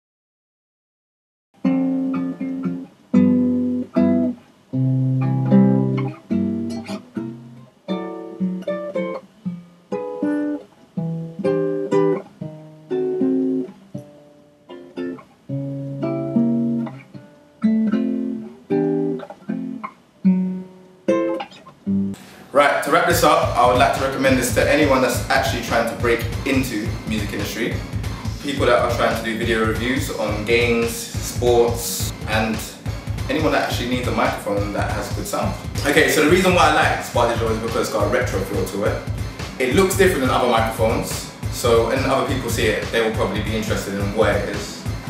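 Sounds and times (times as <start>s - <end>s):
classical guitar fingerpicked: 1.6s - 22.2s.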